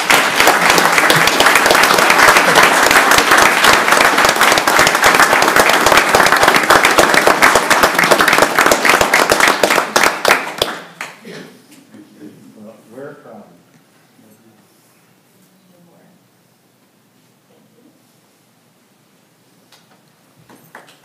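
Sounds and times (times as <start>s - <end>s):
crowd applauding: 0.0s - 11.2s.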